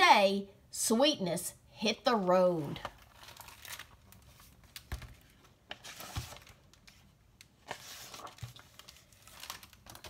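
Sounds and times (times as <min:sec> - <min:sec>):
paper pages rustling: 0:02.8 - 0:10.0.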